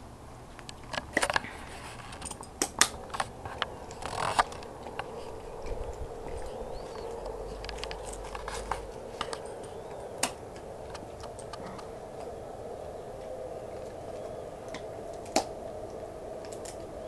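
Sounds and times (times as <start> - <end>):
steady low hum: 0.0 - 17.0
dog claws clicking on concrete: 0.6 - 6.4.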